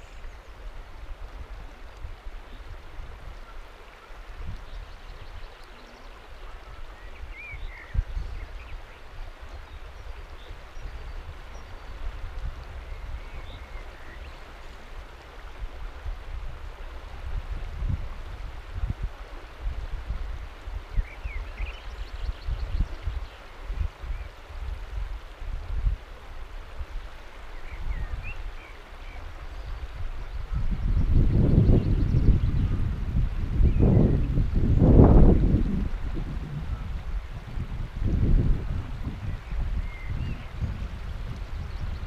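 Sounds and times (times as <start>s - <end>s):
river water rushing: 0.0s - 22.2s, 23.1s - 30.8s
wind rumble on microphone: 0.0s - 42.0s.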